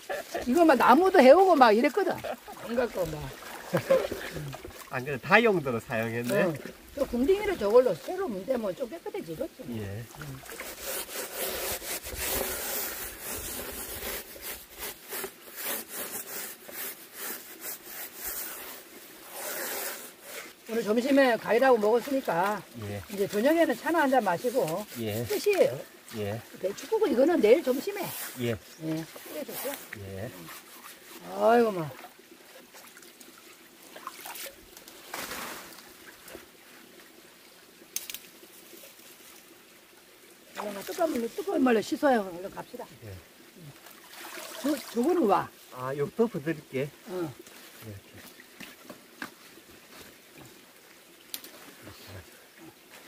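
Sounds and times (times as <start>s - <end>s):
stream trickling over rocks: 0.0s - 53.0s
hand scrubbing container: 9.8s - 31.8s, 44.1s - 45.3s
sharp rustle: 10.5s - 20.7s, 34.3s - 35.9s
water splash: 33.9s - 36.3s, 43.9s - 45.3s.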